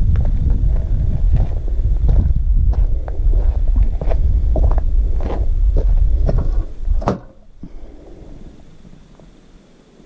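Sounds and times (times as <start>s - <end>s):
footsteps on dry dirt: 0.0s - 7.0s
wind rumbling on microphone: 0.0s - 10.0s.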